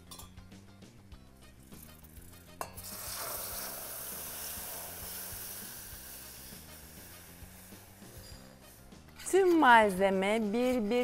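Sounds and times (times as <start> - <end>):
sharp clink: 0.0 - 0.5
liquid sizzling in a hot pan: 1.3 - 9.9.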